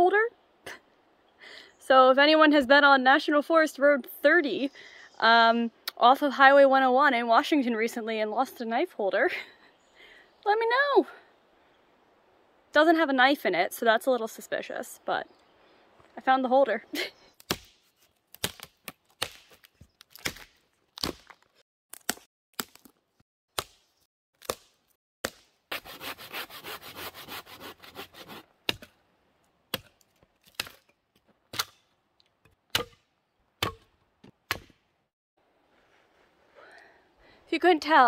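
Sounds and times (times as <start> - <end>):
dry sticks cracking and snapping: 17.4 - 23.0, 23.6 - 25.5, 29.7 - 33.8
hand saw cutting a branch: 23.6 - 28.9.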